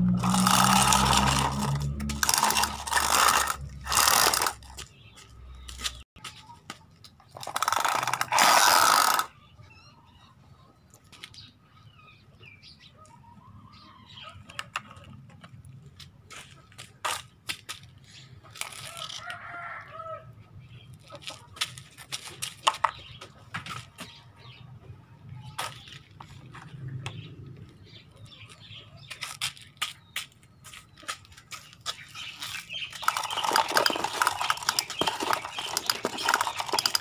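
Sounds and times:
toys clicking and knocking: 0.1s - 4.9s, 6.7s - 9.3s, 21.2s - 24.1s, 32.4s - 37.0s
plastic toys scraping sand on concrete: 0.1s - 5.0s, 7.3s - 9.4s, 28.6s - 37.0s.

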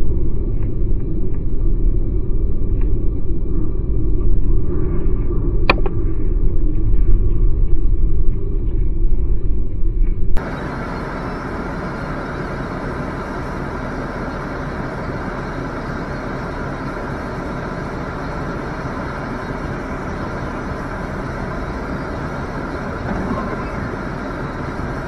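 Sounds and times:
traffic rumble and hiss: 10.4s - 25.0s.

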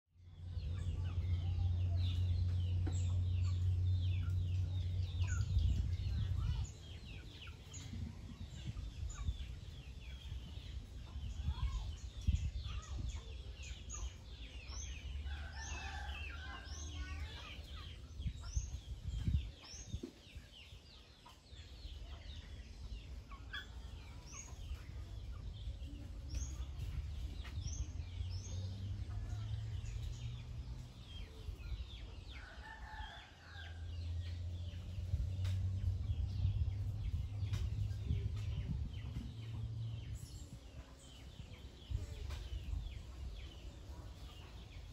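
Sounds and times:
low steady rumble: 0.1s - 44.9s
small birds chirping: 0.2s - 44.9s.

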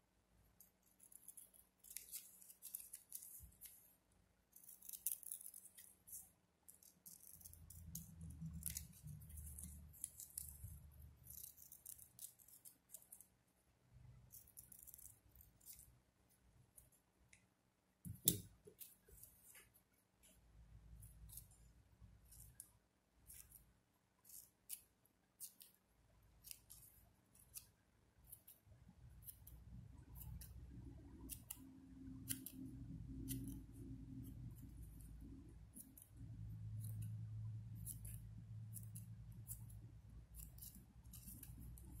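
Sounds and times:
faint low hum: 0.0s - 42.0s
scissors snipping ribbon: 0.6s - 3.9s, 4.5s - 13.2s, 29.2s - 42.0s.

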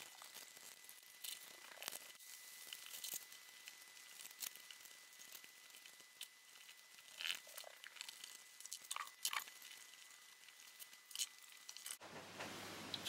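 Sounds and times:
foam squeaking and rustling: 0.0s - 8.9s.

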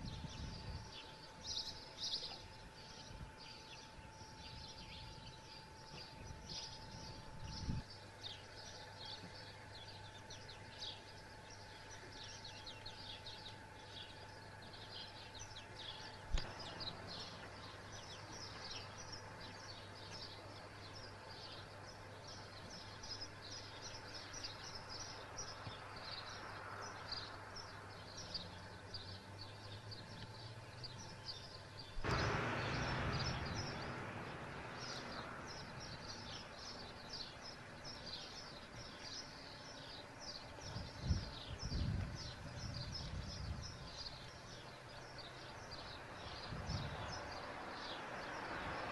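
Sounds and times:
faint steady whine: 0.0s - 45.8s
small birds chirping: 0.0s - 48.9s
rush of noise: 32.0s - 36.4s.

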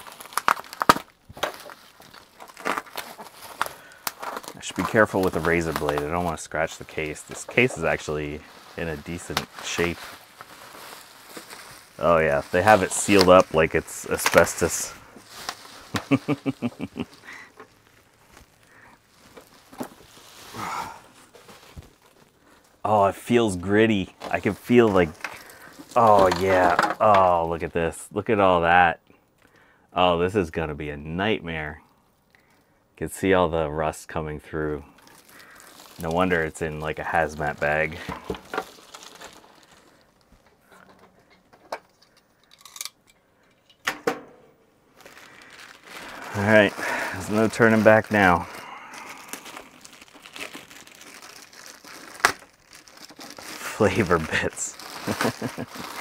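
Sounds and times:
plastic bag rustling: 0.0s - 27.6s, 34.8s - 42.8s, 44.9s - 56.0s
bubble wrap and plastic crinkling: 0.0s - 29.6s, 34.5s - 43.1s, 44.9s - 56.0s
man chuckling: 15.9s - 17.5s, 54.2s - 56.0s.

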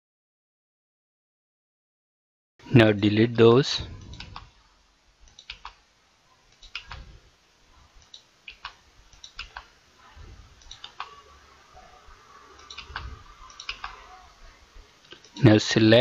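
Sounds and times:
computer mouse and keyboard clicks: 4.0s - 4.5s, 5.3s - 5.8s, 6.5s - 7.1s, 8.0s - 9.7s, 10.6s - 11.2s, 12.6s - 14.0s.

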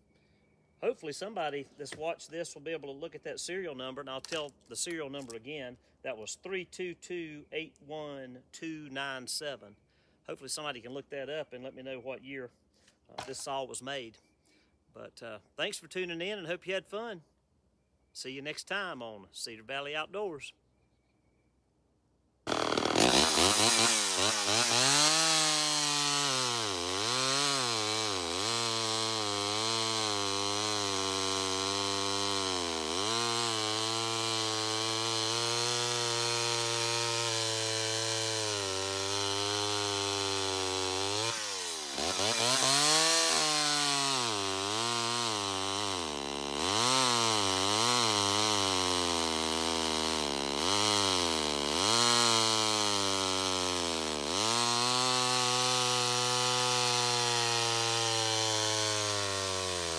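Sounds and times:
chainsaw cutting log: 22.4s - 59.9s.

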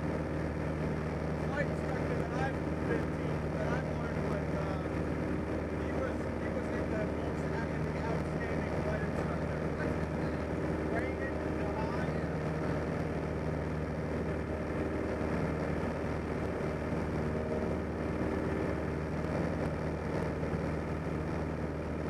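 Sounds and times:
light aircraft engine and propeller: 0.0s - 22.0s.

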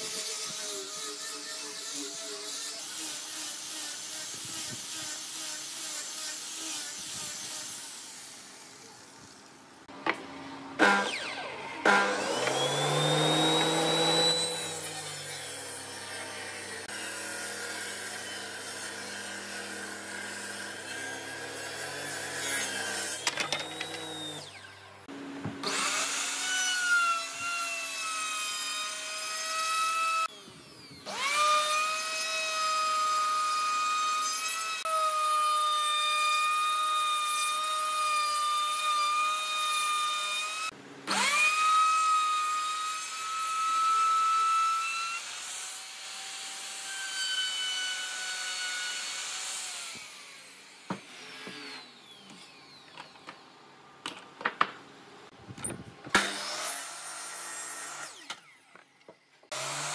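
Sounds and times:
table saw hum: 0.1s - 53.5s
router motor high whine: 10.8s - 25.0s.

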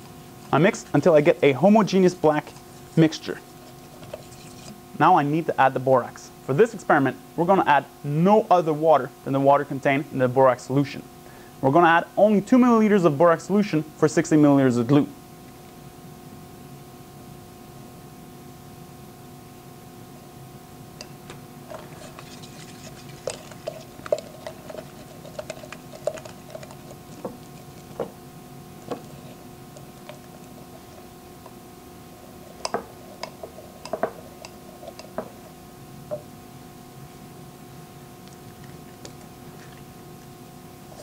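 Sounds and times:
steady low hum: 0.0s - 41.0s
stick scraping glass beaker: 2.3s - 4.8s, 21.7s - 28.1s, 28.8s - 31.6s, 32.2s - 36.2s.

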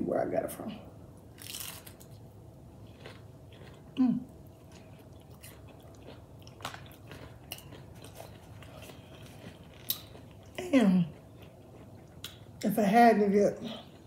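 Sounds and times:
person crunching onion ring: 1.3s - 12.6s.

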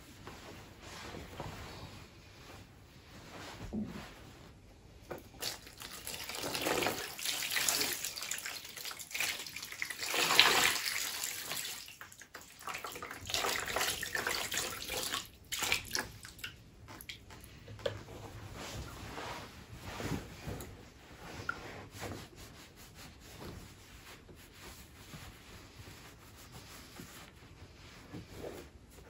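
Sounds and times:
water pouring into basin: 5.4s - 16.4s.

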